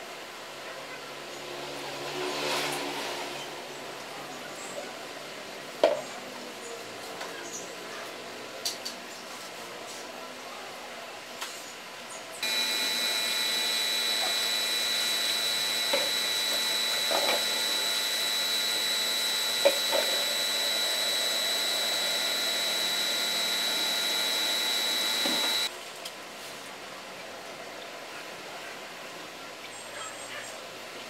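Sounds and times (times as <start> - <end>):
electric motor whine: 12.4 - 25.7.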